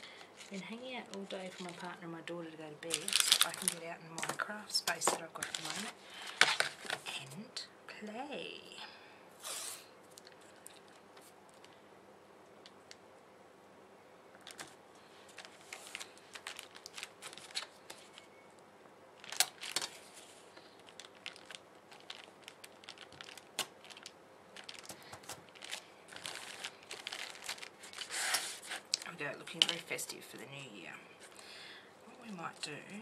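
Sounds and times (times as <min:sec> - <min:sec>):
tape crinkling and rustling: 0:00.0 - 0:07.2, 0:09.4 - 0:11.8, 0:14.3 - 0:18.6, 0:19.2 - 0:30.1.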